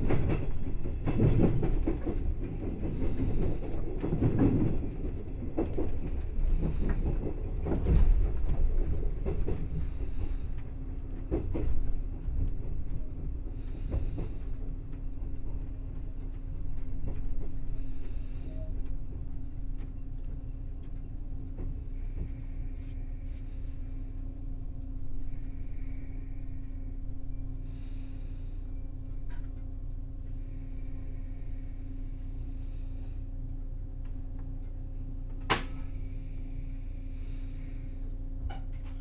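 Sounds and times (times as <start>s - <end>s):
wheels clicking over rail joints: 0.0s - 22.6s
train low rumble and hum: 0.0s - 39.0s.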